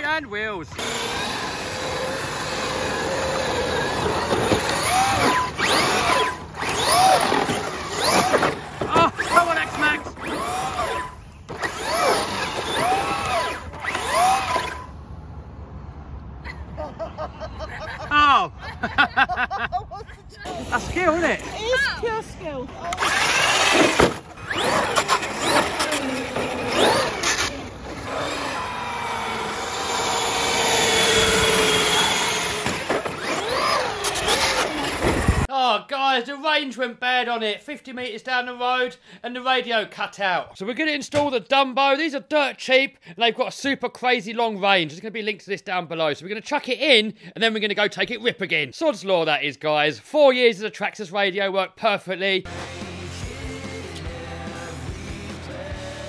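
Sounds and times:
electric motor whine: 0.8 - 14.9, 22.9 - 35.5
plastic scraping on tarmac: 2.9 - 14.9, 22.9 - 28.4.

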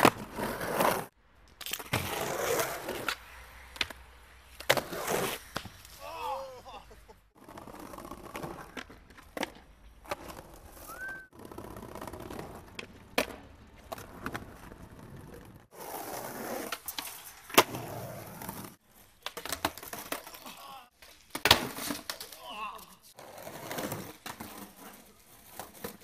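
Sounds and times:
skateboard wheels rolling: 0.0 - 26.0
skateboard clacks: 7.5 - 15.6.

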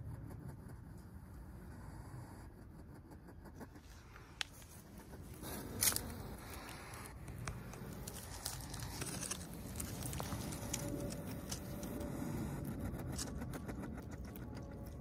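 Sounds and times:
low background rumble: 0.0 - 15.0
dry leaves rustling and crackling: 5.4 - 12.0.

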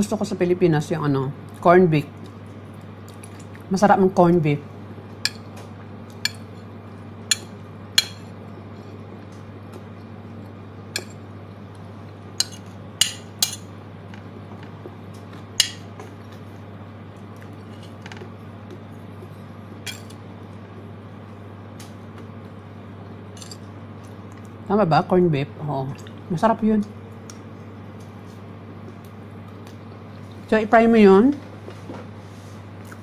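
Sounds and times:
steady low hum: 0.0 - 33.0
metal spoon clinking on a plate: 19.9 - 20.1, 23.4 - 23.6.

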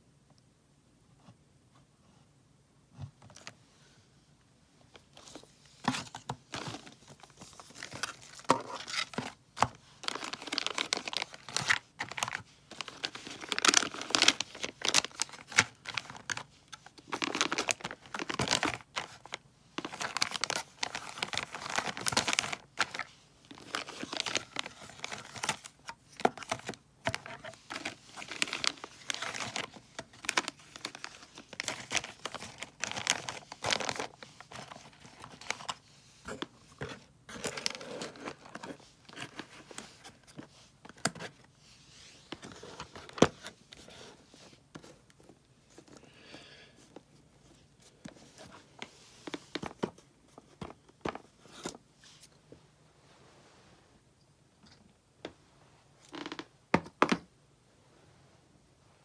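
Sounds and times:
plastic packaging crinkling: 5.8 - 40.4.

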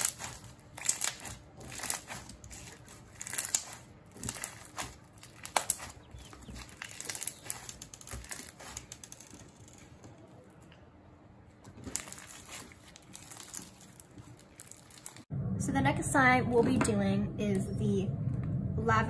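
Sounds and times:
crunchy slime being squished: 0.0 - 10.5, 11.5 - 15.3.

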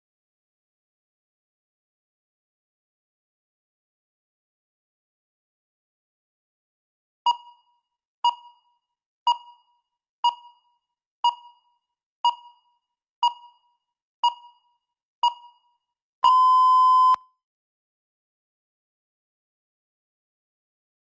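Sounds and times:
long timer beep: 16.2 - 17.2
short electronic beeps: 16.2 - 17.3.

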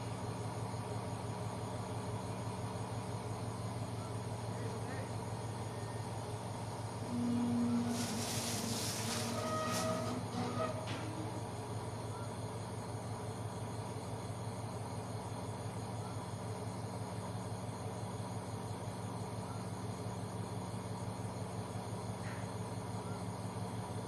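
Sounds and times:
crickets trilling: 0.0 - 24.0
low hum: 7.0 - 12.3.

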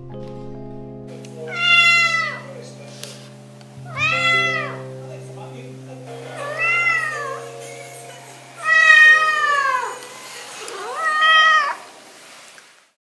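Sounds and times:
cat meowing: 1.5 - 2.6, 3.8 - 4.9, 6.3 - 7.5, 8.6 - 10.0, 10.6 - 12.0.

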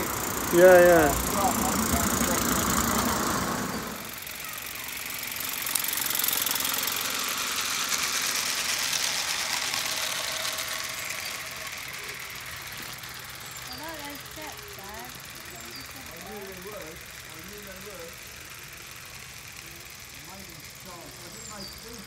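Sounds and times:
steam locomotive hiss and exhaust beats: 0.0 - 6.4.

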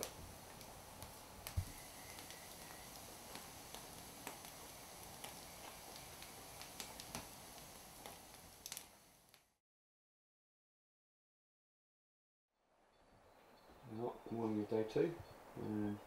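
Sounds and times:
wood fire crackling: 0.0 - 9.6.

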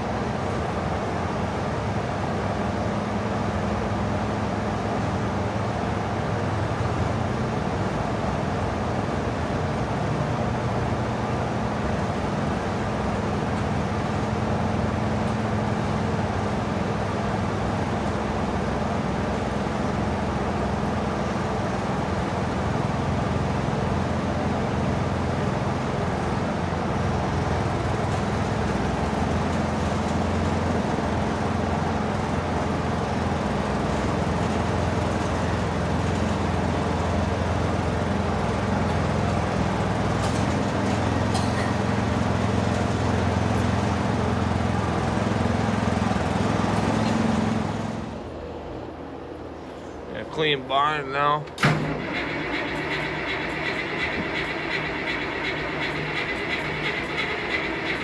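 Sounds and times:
motors humming: 51.5 - 58.0.

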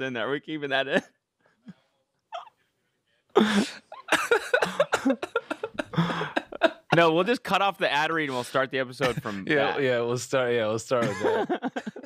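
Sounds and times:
men laughing wheezily: 3.4 - 7.0, 8.3 - 9.6, 11.0 - 12.0.

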